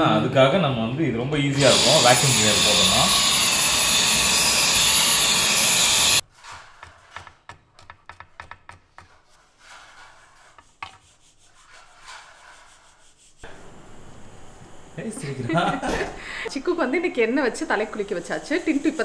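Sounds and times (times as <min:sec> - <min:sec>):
stick vacuum cleaner running: 0:01.5 - 0:06.2, 0:13.4 - 0:16.5.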